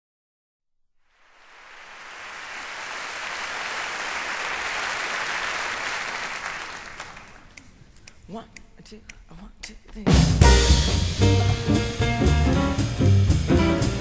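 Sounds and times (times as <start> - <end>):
crowd applauding: 1.2 - 7.6.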